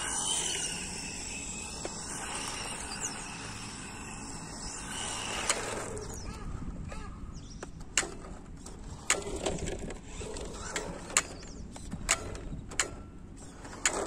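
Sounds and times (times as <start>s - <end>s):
electric motor whine: 0.0s - 6.5s.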